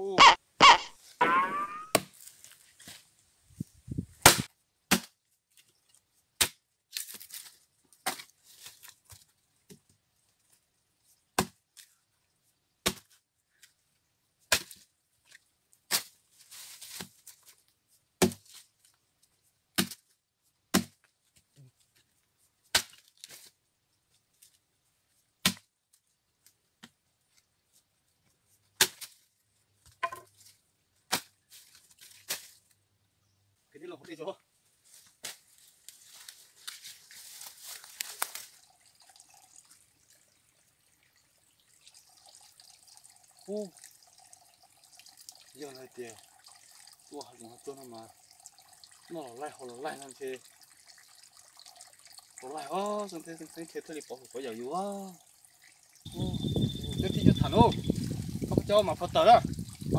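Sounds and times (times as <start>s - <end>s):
blade chopping into wood: 4.2s - 5.1s, 20.8s - 21.0s.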